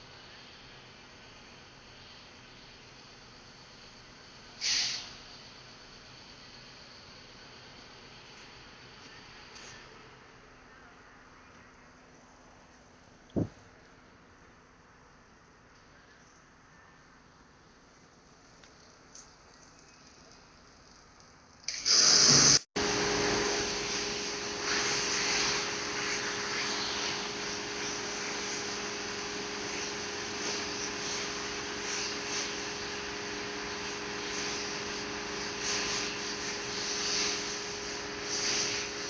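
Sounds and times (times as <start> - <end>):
water spraying: 19.5 - 39.0
steady machine hum: 22.8 - 39.0.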